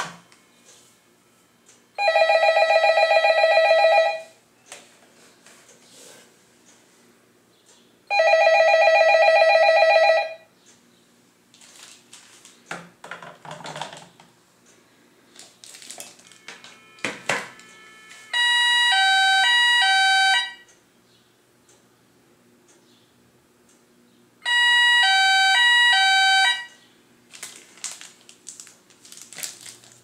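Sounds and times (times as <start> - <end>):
warbling electronic telephone ring: 2.0 - 4.3, 8.1 - 10.4
siren-like two-pitch phone ring: 2.0 - 4.4, 16.3 - 20.7, 24.4 - 26.8.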